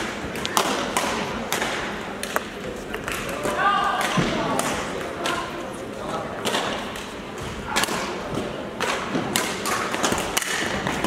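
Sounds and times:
racket hitting shuttlecock: 0.0s - 5.5s, 6.4s - 11.0s.

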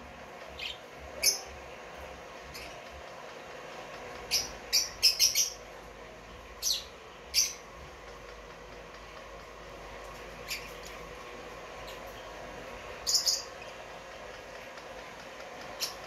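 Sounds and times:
lovebirds chirping: 0.4s - 1.6s, 3.9s - 9.1s, 10.2s - 11.0s, 11.7s - 14.1s.

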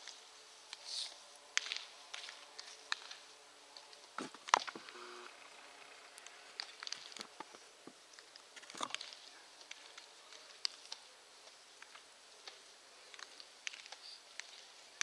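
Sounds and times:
faint clicks and taps: 6.2s - 14.7s.

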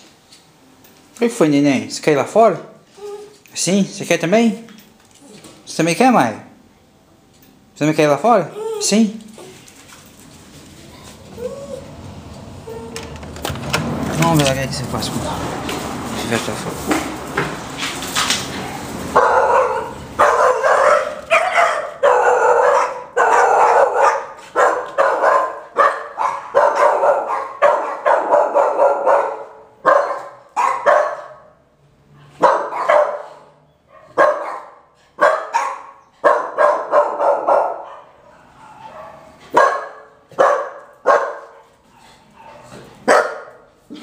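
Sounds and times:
puppy barking: 18.6s - 31.6s, 32.2s - 41.7s, 42.4s - 43.7s.

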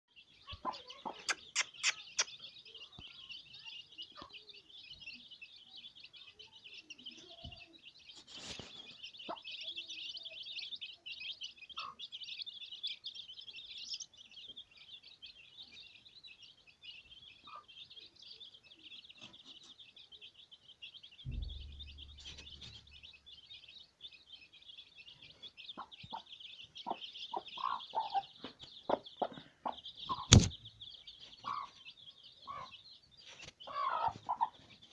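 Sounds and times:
chicks peeping: 0.1s - 34.9s
hen clucking: 0.5s - 2.5s, 9.2s - 9.5s, 25.8s - 30.6s, 31.4s - 31.8s, 32.4s - 32.8s, 33.6s - 34.7s.

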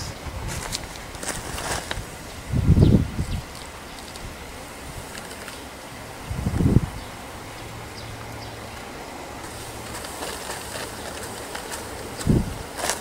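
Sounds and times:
light rustling and ticks: 5.1s - 5.6s.

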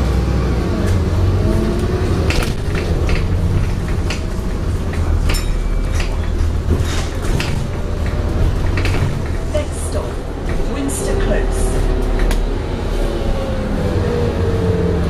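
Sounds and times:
bus engine and road rumble: 0.0s - 15.0s
interior panels rattling: 2.2s - 10.8s.

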